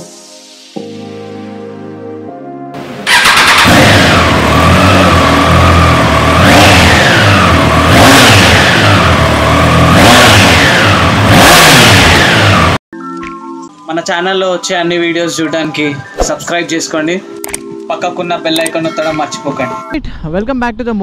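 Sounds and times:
motorcycle engine revving: 3.0 - 12.8.

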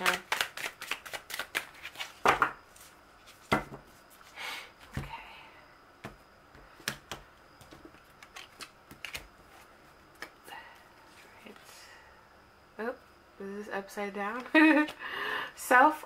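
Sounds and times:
cards slapping on table: 0.0 - 2.5
cards shuffling: 0.0 - 3.6, 6.9 - 10.4.

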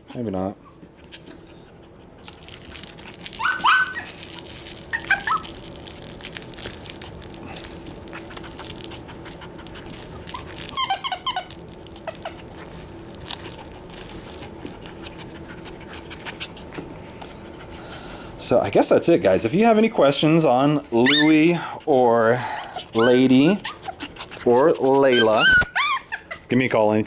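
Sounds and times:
puppy squeals: 0.6 - 2.2, 3.2 - 5.7, 8.1 - 12.7, 20.9 - 21.6, 22.3 - 26.5
puppy yipping: 3.4 - 4.2, 4.9 - 5.6, 10.1 - 12.5, 20.9 - 21.6, 22.5 - 26.5.

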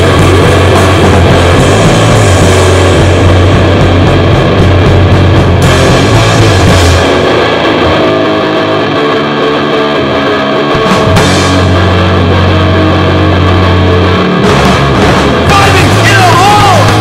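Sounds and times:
distorted punk rock: 0.0 - 17.0
heavy low bass note: 0.0 - 17.0.

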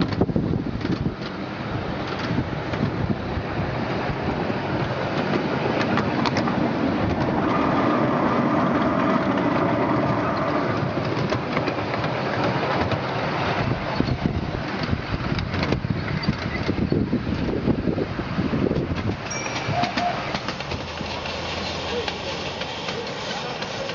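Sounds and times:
miniature train rumbling: 0.0 - 23.9.

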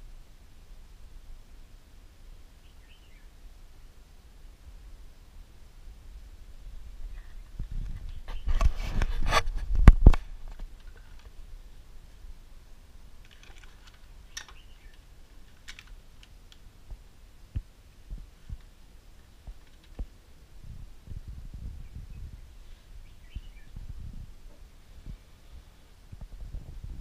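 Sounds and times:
rubbing and scraping: 7.2 - 11.4
faint clicks and soft thumps: 13.2 - 22.8.

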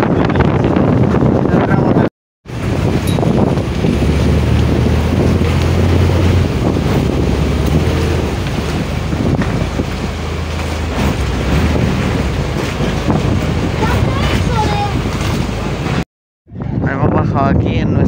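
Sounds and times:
churning water: 0.0 - 16.1
wind noise on microphone: 0.0 - 18.0
boat engine humming: 2.4 - 16.0.

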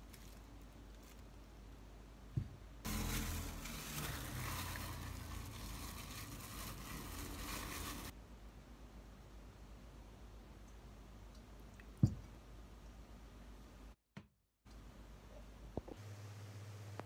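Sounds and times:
plastic bag rustling: 0.0 - 1.4, 2.9 - 8.2.

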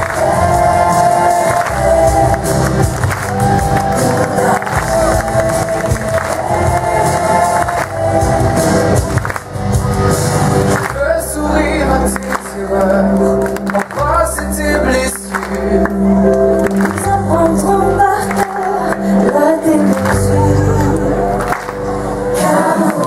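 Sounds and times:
backing track with deep bass: 0.0 - 23.0
person singing a melody: 16.9 - 21.5.

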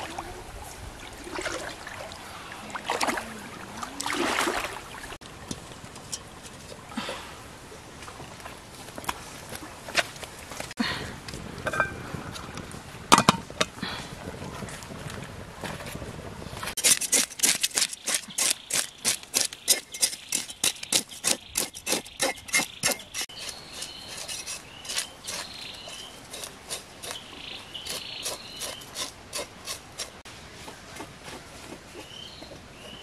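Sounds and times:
knife scraping fish scales: 16.8 - 30.2.

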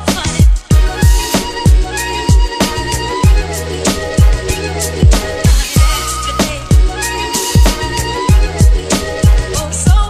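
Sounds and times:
held melodic notes: 1.8 - 8.8
beat with deep bass kicks: 4.2 - 10.0.

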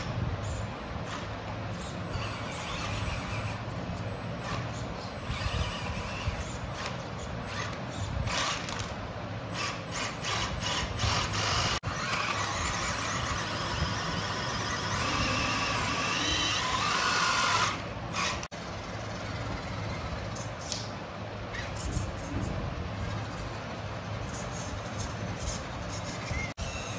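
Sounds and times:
small electric motor whining: 0.0 - 18.5, 24.2 - 26.9.

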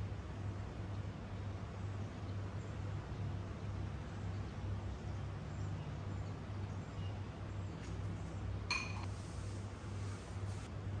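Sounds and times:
steady low hum: 0.0 - 11.0
glass clinking: 8.7 - 9.1.

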